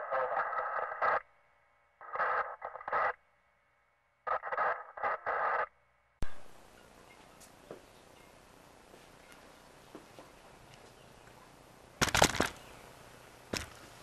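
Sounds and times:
radio-like sound bursts: 0.0 - 1.4, 2.0 - 3.2, 4.2 - 6.5.

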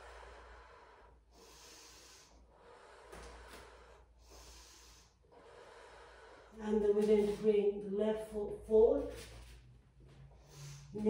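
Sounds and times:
person breathing softly: 0.0 - 6.6, 10.2 - 11.0.

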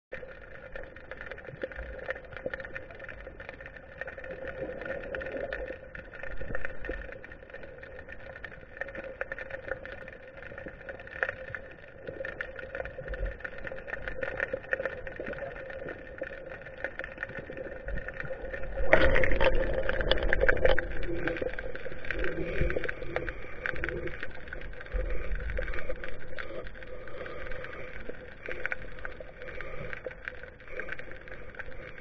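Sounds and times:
clicks and crackles: 0.1 - 32.0
steady underwater hum: 0.1 - 32.0.

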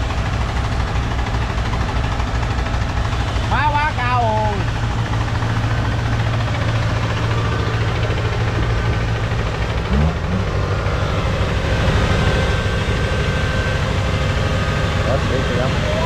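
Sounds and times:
diesel engine running under load: 0.0 - 16.0.

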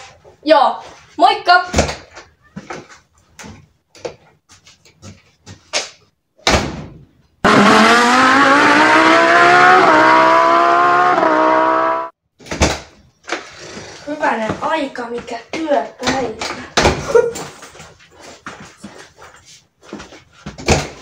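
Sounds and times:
car engine accelerating: 7.4 - 12.2.

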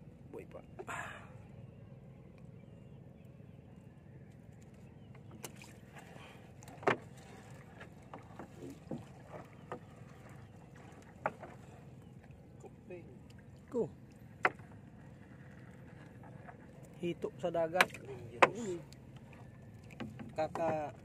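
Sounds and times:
low wash of water: 5.3 - 17.2, 17.8 - 21.0
net knocking against wooden hull: 6.7 - 7.1, 8.1 - 9.8, 14.4 - 14.7, 17.7 - 18.8, 19.8 - 21.0.

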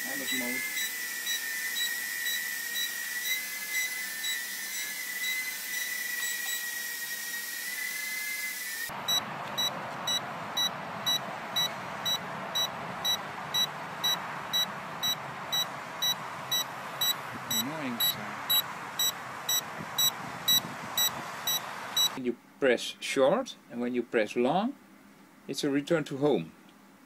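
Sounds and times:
quadcopter motor whine: 0.0 - 22.2
steady rushing noise: 8.9 - 22.2
short beeps: 9.1 - 22.2.

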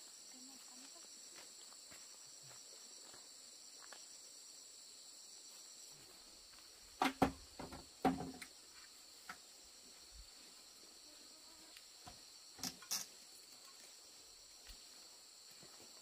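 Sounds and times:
insects chirring: 0.0 - 16.0
sharp knocks and clatter: 7.0 - 8.5.

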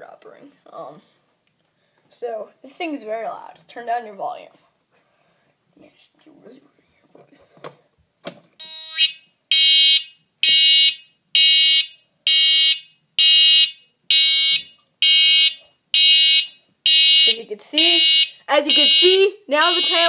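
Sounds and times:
high-pitched alarm beeping: 8.6 - 20.0.

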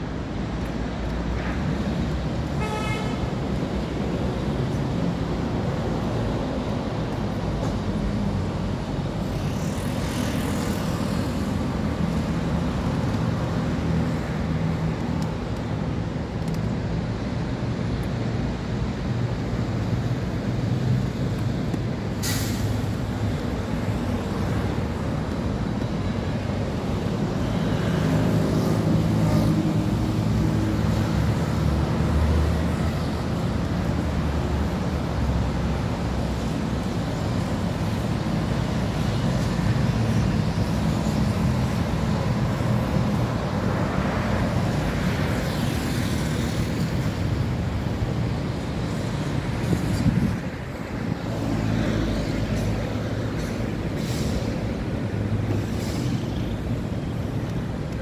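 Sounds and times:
highway traffic: 0.0 - 58.0
sharp hiss: 22.1 - 23.2, 52.5 - 54.9, 55.5 - 56.6.

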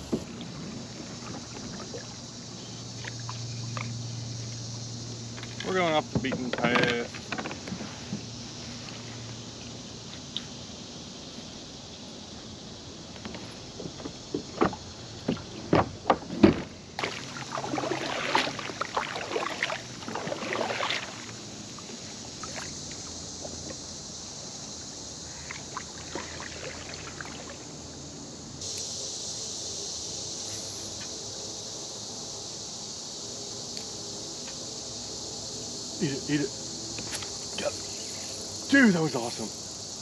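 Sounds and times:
water noise: 0.0 - 10.5, 13.1 - 28.8
high insect hiss: 0.0 - 40.0.

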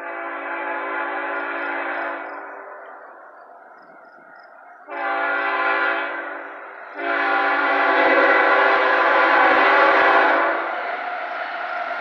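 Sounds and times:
locomotive air horn blasts: 0.0 - 2.9, 4.9 - 10.8.

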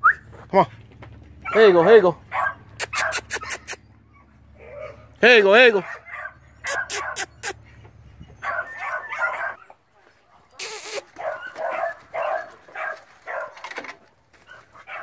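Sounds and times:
dog yipping and whimpering: 2.4 - 5.1, 5.8 - 9.7, 10.6 - 13.5.

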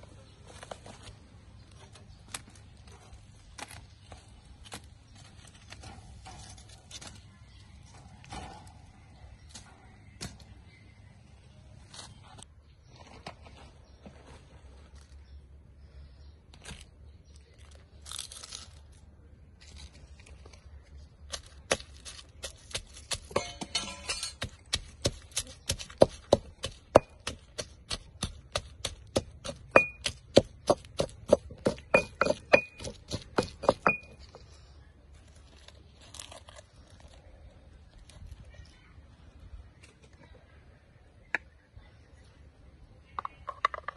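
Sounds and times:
stone pestle pounding in mortar: 22.7 - 34.2.

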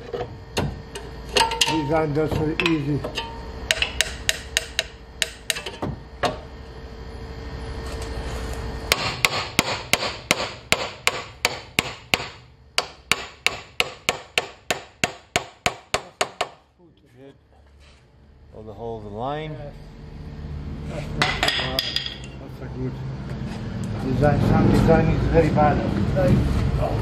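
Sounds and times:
steady hum: 0.0 - 27.0
hammer tapping metal: 1.4 - 6.4, 8.9 - 16.6, 21.2 - 22.4.

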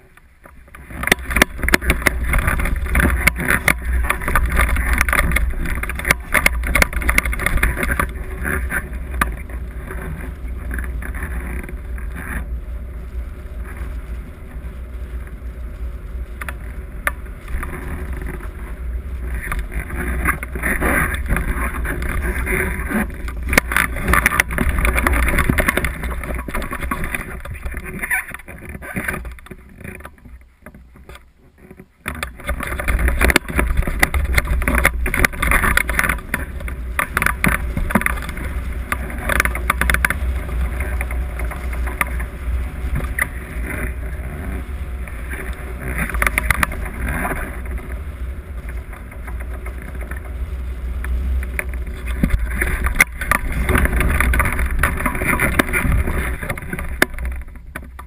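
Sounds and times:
wind buffeting microphone: 32.0 - 58.0.

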